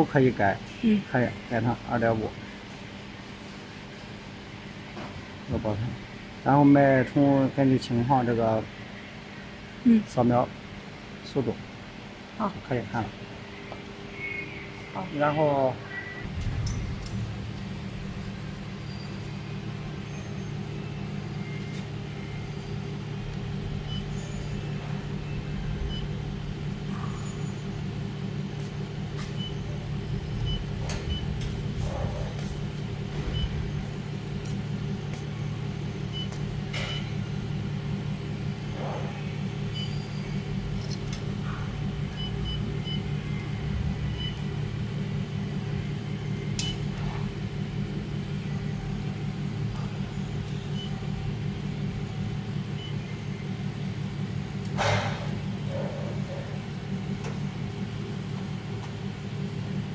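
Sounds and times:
welding machine hum: 0:16.2 - 0:59.9.

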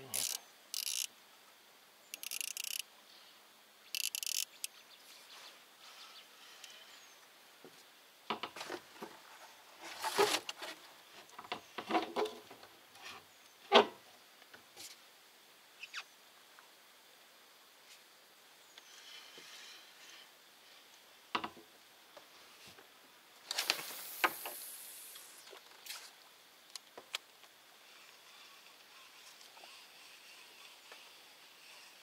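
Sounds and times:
fishing reel whirring: 0:00.1 - 0:01.1, 0:02.1 - 0:02.9, 0:03.9 - 0:04.7, 0:27.8 - 0:32.0.

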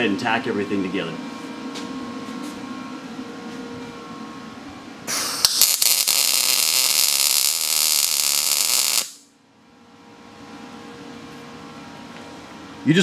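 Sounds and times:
welding arc sizzling: 0:05.1 - 0:09.3.

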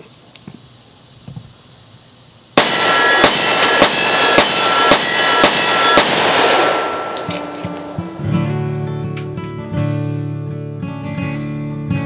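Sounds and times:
rapid pistol shots: 0:02.6 - 0:08.8
gunshot echo: 0:02.6 - 0:09.2.

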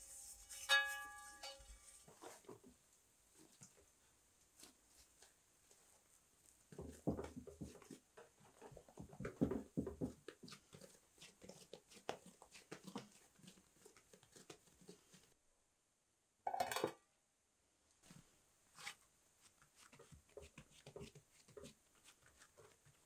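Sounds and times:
dough squishing and thudding: 0:04.6 - 0:15.4, 0:18.0 - 0:23.0.

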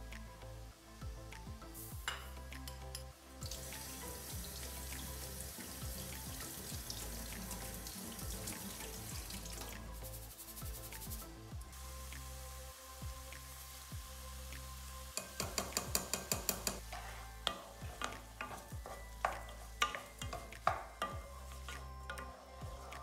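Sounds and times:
music: 0:00.0 - 0:23.0
tap water running into a sink: 0:03.5 - 0:10.0.

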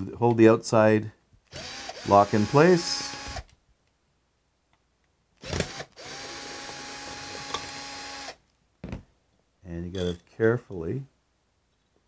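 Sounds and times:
cordless drill motor running: 0:01.5 - 0:03.5, 0:05.4 - 0:08.4.

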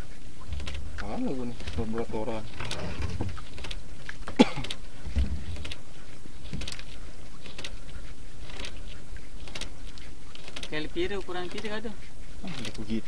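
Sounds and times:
small boat background noise: 0:00.0 - 0:13.0
fishing gear clicks and knocks: 0:00.5 - 0:07.8.

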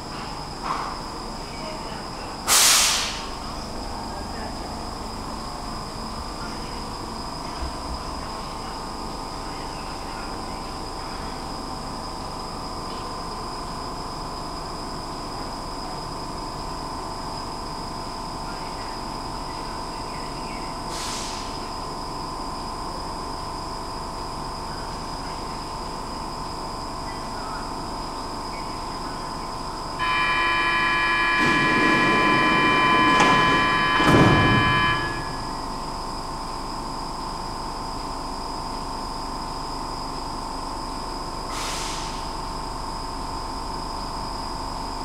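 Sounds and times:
train rumble: 0:28.9 - 0:37.1
multi-tone signal: 0:30.0 - 0:35.7.

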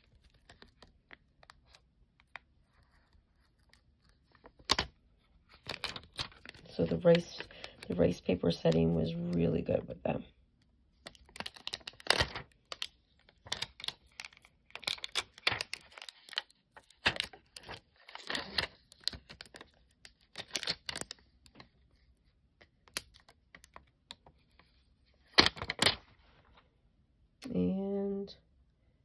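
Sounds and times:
tape crinkling and peeling: 0:00.0 - 0:09.2, 0:10.9 - 0:26.2.

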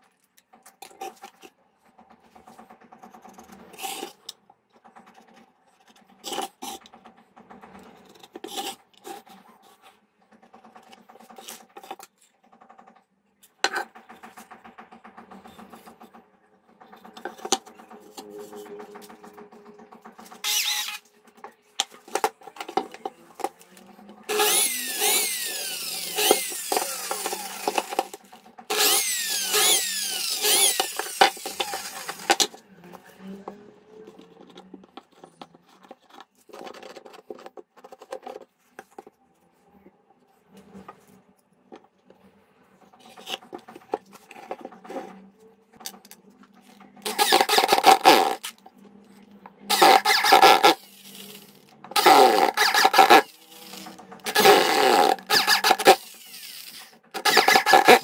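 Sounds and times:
power tool cutting wood: 0:17.0 - 0:21.1, 0:22.1 - 0:34.0, 0:47.0 - 0:48.6, 0:49.6 - 0:58.0.

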